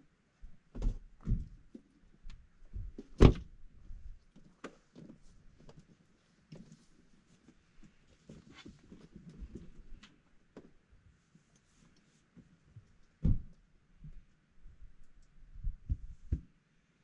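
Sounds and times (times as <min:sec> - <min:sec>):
short low thumps: 0:15.6 - 0:16.4.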